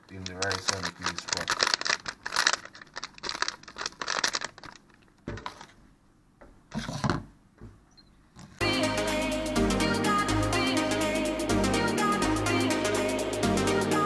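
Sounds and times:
foil packet crinkling: 0:00.0 - 0:05.8
music: 0:08.6 - 0:14.0.

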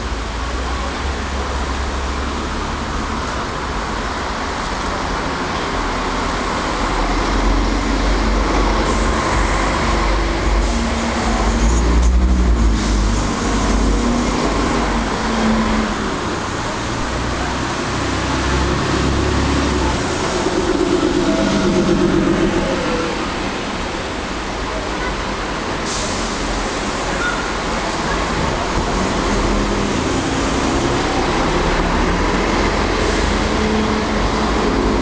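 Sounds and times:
bus engines rumbling past: 0:00.0 - 0:35.0.

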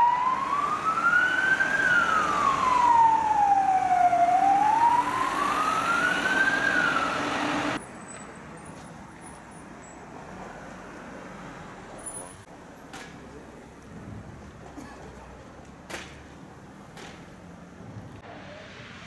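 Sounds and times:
vehicle siren wailing: 0:00.0 - 0:07.8
faint traffic noise: 0:00.0 - 0:19.0.

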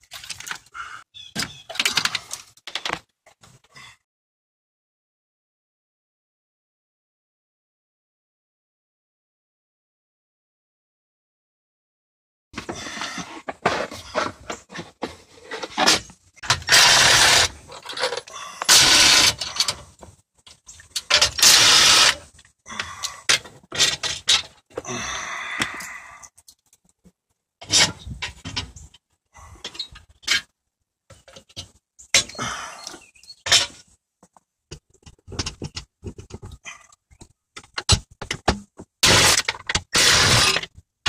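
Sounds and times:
scraping or rustling: 0:12.6 - 0:22.4.

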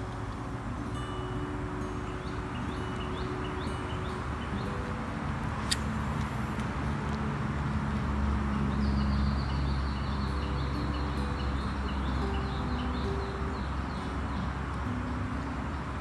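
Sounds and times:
birds chirping: 0:00.0 - 0:07.2, 0:08.0 - 0:16.0
sharp click: 0:05.6 - 0:06.7.

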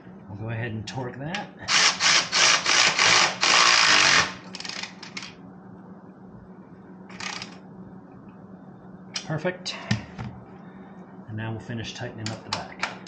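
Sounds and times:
electric ratchet running: 0:01.7 - 0:05.3, 0:07.1 - 0:07.6.

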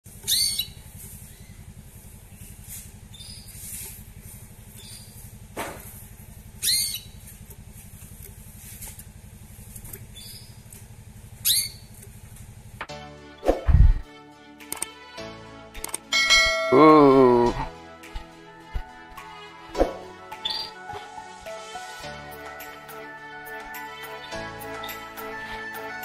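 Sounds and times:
steady low hum: 0:00.1 - 0:12.9, 0:13.6 - 0:14.0
canary call notes: 0:00.3 - 0:01.5, 0:06.6 - 0:07.2, 0:11.4 - 0:11.9.

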